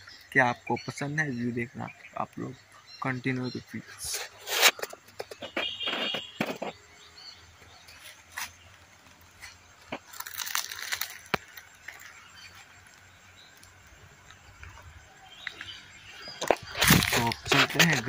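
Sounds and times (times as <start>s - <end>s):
rustling crackling noise: 3.9s - 6.9s, 7.8s - 18.0s.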